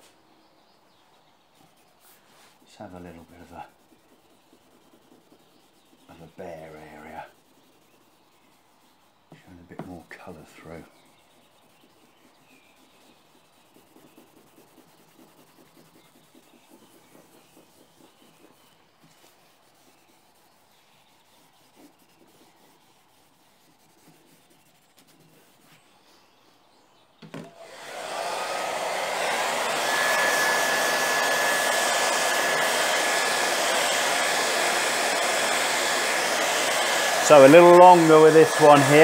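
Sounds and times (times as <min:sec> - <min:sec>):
rag rubbing on a panel: 0:01.6 - 0:26.5, 0:29.5 - 0:39.0
hair dryer blowing: 0:27.4 - 0:39.0.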